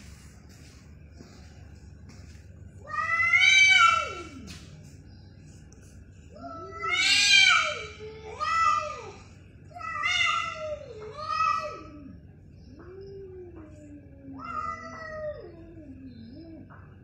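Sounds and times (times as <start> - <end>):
cats yowling: 2.8 - 4.5, 6.4 - 16.8.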